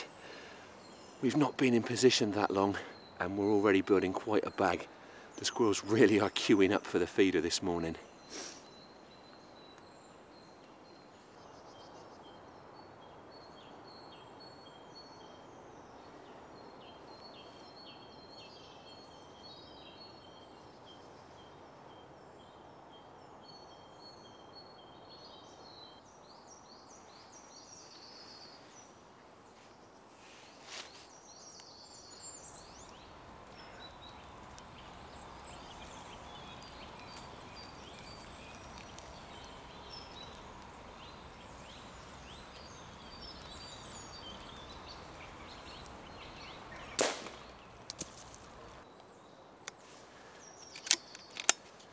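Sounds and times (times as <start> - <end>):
birds chirping: 0.0 - 51.9
faint steady hiss: 0.0 - 51.9.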